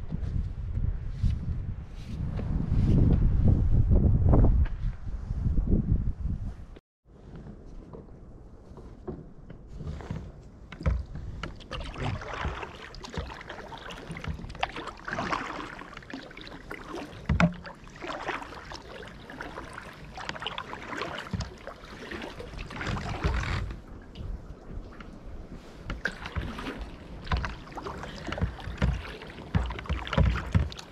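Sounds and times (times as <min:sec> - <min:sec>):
paddle strokes splashing water: 0:09.1 - 0:30.9.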